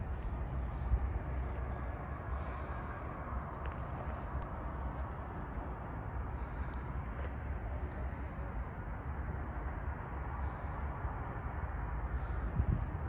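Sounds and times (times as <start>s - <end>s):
wind buffeting microphone: 12.0s - 13.0s.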